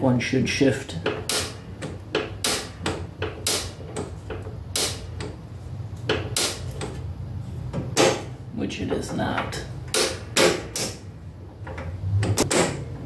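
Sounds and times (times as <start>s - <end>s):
lever and linkage clunking: 11.6s - 13.0s.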